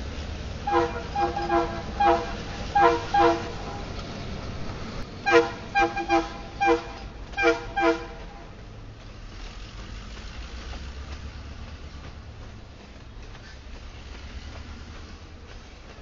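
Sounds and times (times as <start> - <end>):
diesel locomotive rumble: 0.0 - 16.0
train rolling past: 0.0 - 16.0
locomotive air horn toots: 0.6 - 4.0, 5.2 - 8.6.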